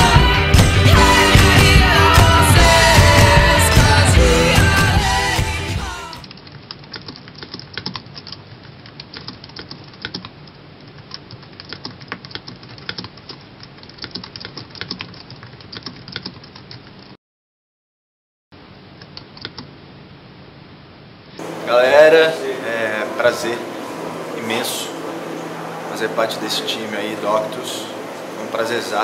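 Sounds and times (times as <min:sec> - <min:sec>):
rock music: 0:00.0 - 0:06.2.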